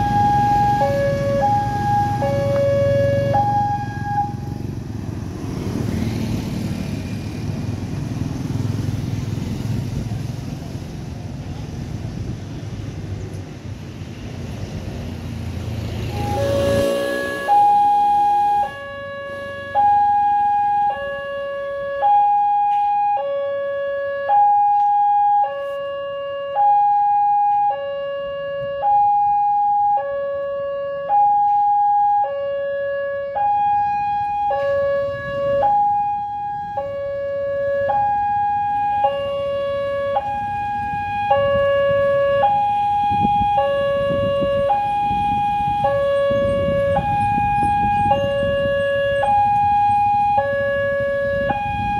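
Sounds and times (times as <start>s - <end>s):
level crossing two-tone alarm: 0.0s - 4.5s, 16.1s - 51.9s.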